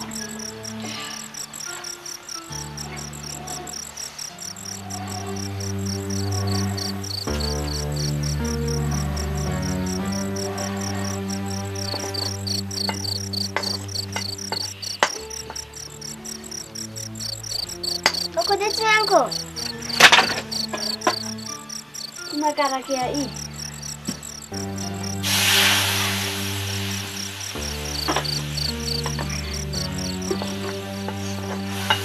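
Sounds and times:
crickets chirping: 0.0 - 32.0
sharp knocks and clicks: 12.8 - 15.7, 19.3 - 21.6.

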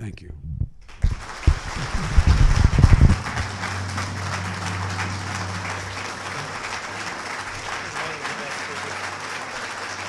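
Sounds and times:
steady low hum: 0.0 - 10.0
microphone handling thumps: 0.4 - 3.5
audience applauding: 0.9 - 10.0.

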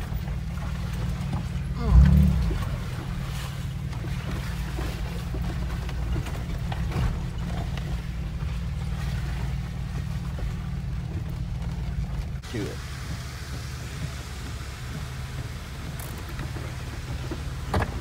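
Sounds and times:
knocks and rattles: 0.0 - 12.4
engine low rumble: 0.0 - 18.0.

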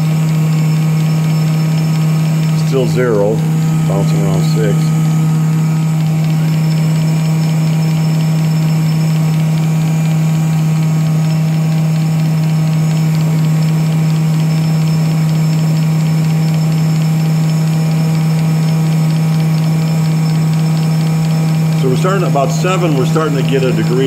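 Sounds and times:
motor humming: 0.0 - 24.0.

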